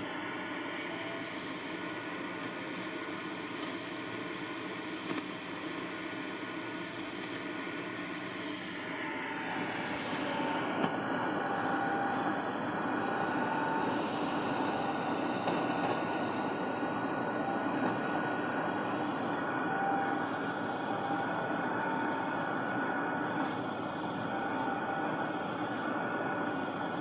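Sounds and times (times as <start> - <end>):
faint steady tones: 0.0 - 27.0
radio hiss and static: 0.0 - 27.0
weak distant radio broadcast: 8.4 - 27.0.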